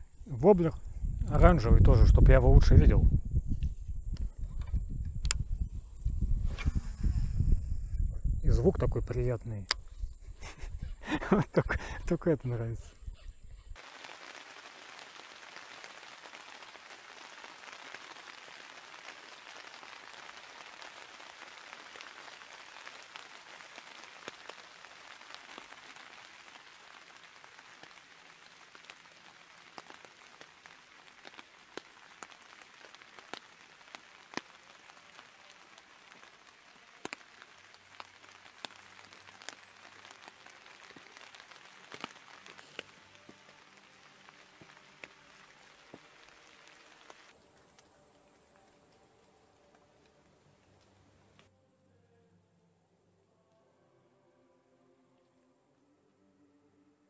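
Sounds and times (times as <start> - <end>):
rain hiss: 0.0 - 51.5
raindrop ticks: 13.8 - 50.2.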